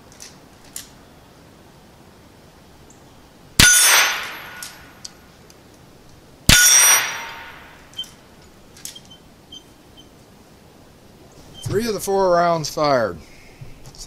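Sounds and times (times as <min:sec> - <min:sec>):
rifle shots: 0:03.6 - 0:05.0, 0:06.5 - 0:07.8
steel target clanging and ringing: 0:03.6 - 0:05.0, 0:06.5 - 0:08.0.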